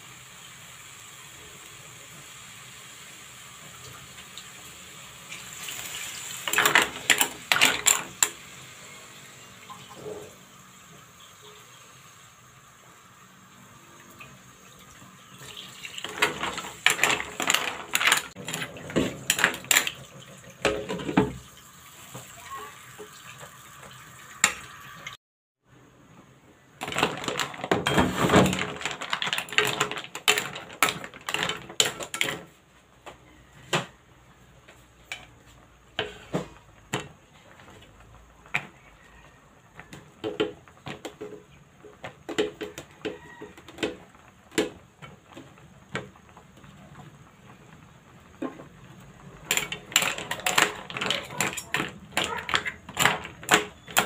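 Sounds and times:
mussel shells clattering in pan: 6.2 - 8.4, 16.0 - 21.3, 26.8 - 32.5, 39.8 - 54.0.

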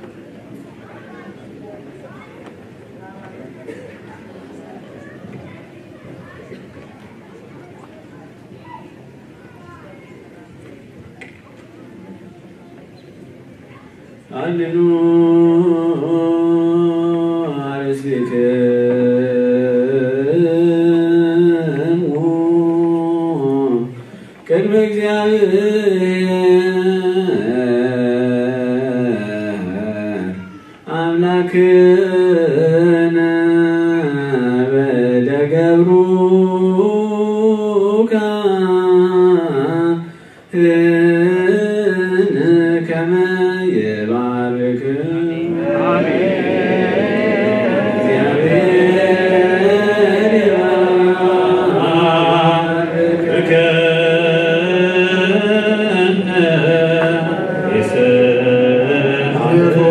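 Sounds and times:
man chanting into a microphone: 14.3 - 46.0, 48.0 - 59.9
men singing a chant: 41.9 - 59.9.

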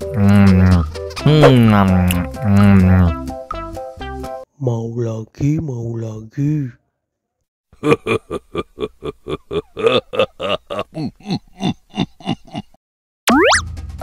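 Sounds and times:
cartoon character laughing: 7.8 - 12.8
rising boing sound effect: 13.3 - 13.6.

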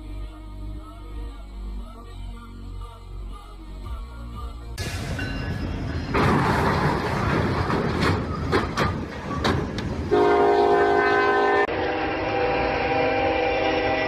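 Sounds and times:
heavy rumbling: 2.6 - 10.7
metal crunches and bangs: 4.8 - 10.1
train air horn: 10.1 - 14.0.

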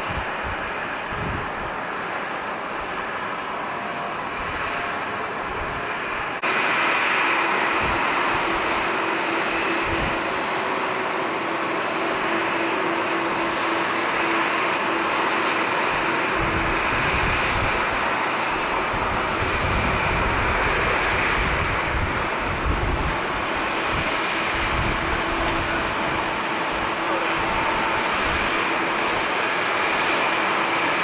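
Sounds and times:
jet engine roar: 0.0 - 31.0
heavy low rumble: 16.0 - 29.6.

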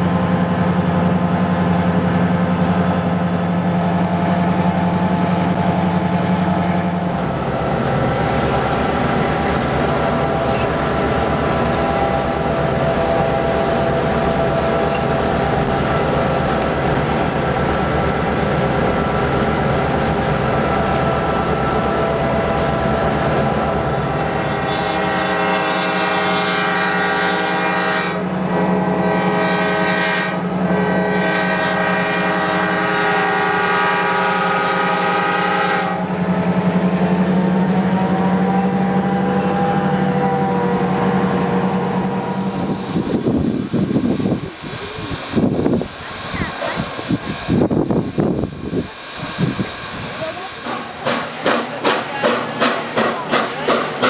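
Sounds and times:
diesel locomotive engine drone: 0.0 - 54.0
wind and rail noise: 0.0 - 54.0
locomotive horn blasts: 23.7 - 36.1.

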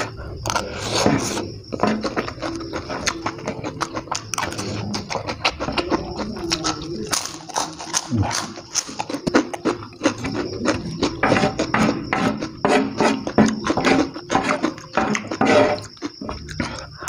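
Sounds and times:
crunching and chewing fried chicken: 0.0 - 17.0
metal spoon scraping: 11.2 - 16.3.

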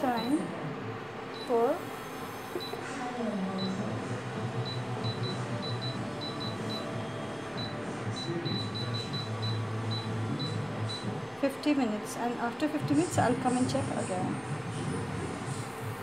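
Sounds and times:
cooktop touch panel beeps: 0.0 - 0.5, 1.4 - 1.8, 2.4 - 2.8, 4.6 - 7.0, 7.6 - 11.1
steady low hum: 0.0 - 16.0.

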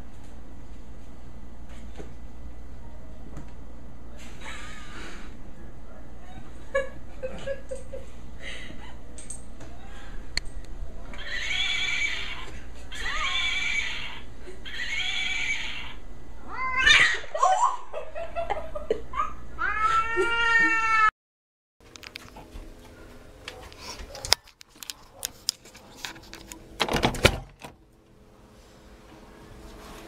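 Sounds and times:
cat yowling: 11.1 - 17.4, 19.6 - 21.1.

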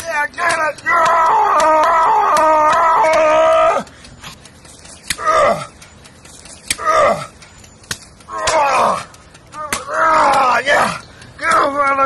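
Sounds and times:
man yelling: 0.0 - 3.9, 8.3 - 12.0.

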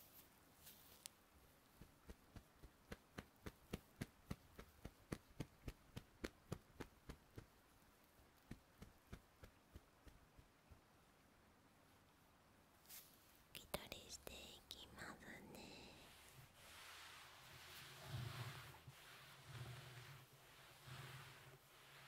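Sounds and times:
hands tapping softly: 1.8 - 7.6, 8.4 - 10.9.

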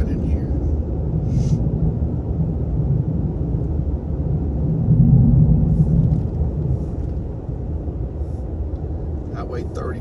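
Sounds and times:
engine and tyre rumble: 0.0 - 10.0.

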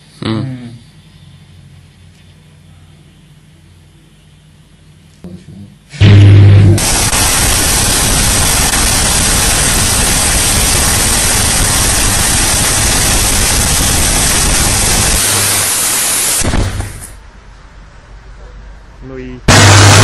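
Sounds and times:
low electrical hum: 0.0 - 20.0
electrical arcing hiss: 5.9 - 17.2, 19.5 - 20.0.

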